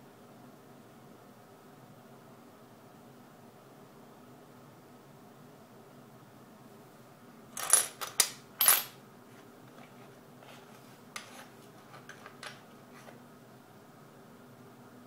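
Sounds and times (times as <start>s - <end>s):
coins clicking on wooden table: 7.6s - 9.0s, 11.2s - 12.6s
coins clinking together: 7.6s - 9.0s.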